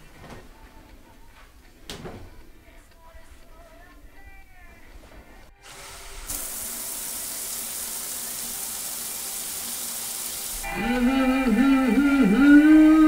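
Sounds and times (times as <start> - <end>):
shower water spraying on tiles: 5.6 - 10.6.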